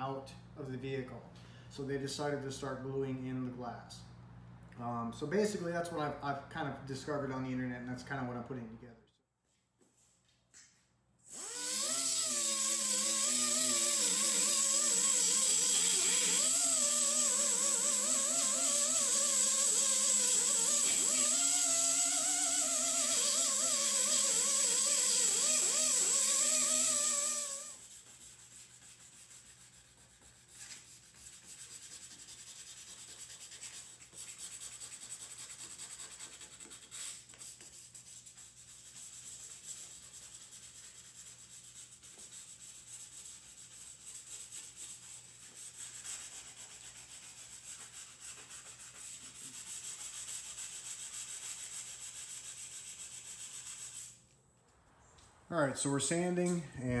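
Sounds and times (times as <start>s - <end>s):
sanding on rusted steel: 11.5s - 54.2s.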